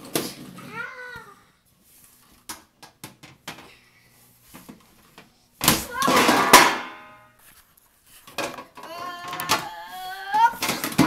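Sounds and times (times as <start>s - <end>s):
person yelling: 5.8s - 6.7s, 8.9s - 10.7s.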